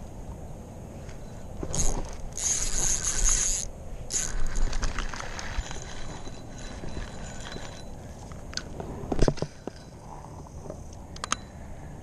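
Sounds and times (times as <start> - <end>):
fishing reel whirring: 1.7 - 8.0
reel mechanical clicks: 1.7 - 9.9.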